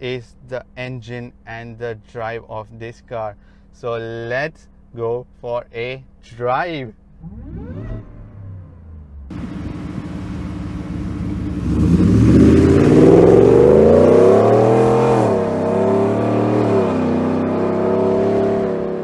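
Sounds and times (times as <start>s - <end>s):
pickup truck engine accelerating: 7.1s - 19.0s.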